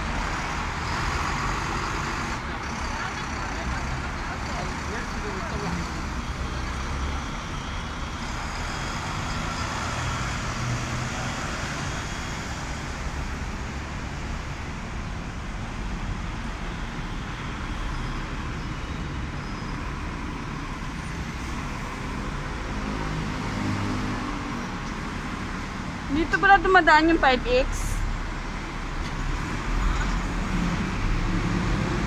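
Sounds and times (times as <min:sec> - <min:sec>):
bus engine passing: 0:00.0 - 0:32.0
road traffic rumble: 0:00.0 - 0:32.0.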